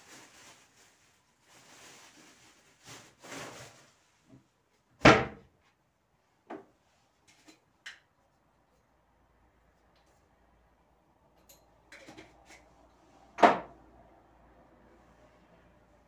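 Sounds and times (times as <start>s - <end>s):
cabinet door banging shut: 5.0s - 5.5s, 13.4s - 13.7s.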